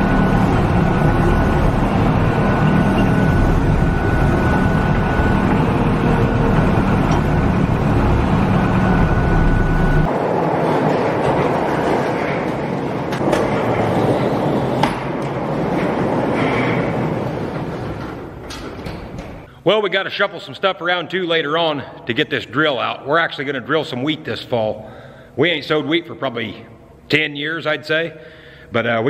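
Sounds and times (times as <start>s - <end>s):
diesel engine running: 0.0s - 10.3s
faint steady whine: 0.0s - 10.3s
steady rushing noise: 0.0s - 18.6s.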